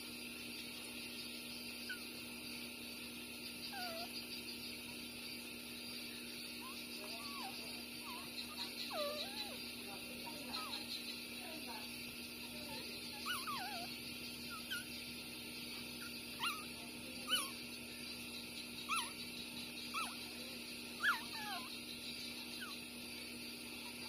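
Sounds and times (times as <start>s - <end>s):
puppies whimpering and squeaking: 3.7s - 4.2s, 6.6s - 11.0s, 12.6s - 15.0s, 15.8s - 18.0s, 18.8s - 19.3s, 19.9s - 20.4s, 21.0s - 22.8s.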